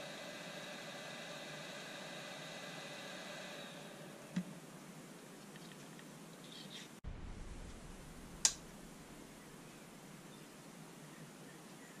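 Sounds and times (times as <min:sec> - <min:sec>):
hum of steady tones: 0:00.0 - 0:05.3, 0:07.1 - 0:12.0
low room noise: 0:00.0 - 0:12.0
sharp click: 0:08.4 - 0:08.7.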